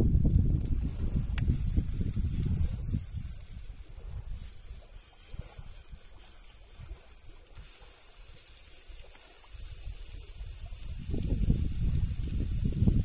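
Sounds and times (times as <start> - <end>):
oil sizzling on a grill: 7.6 - 13.0.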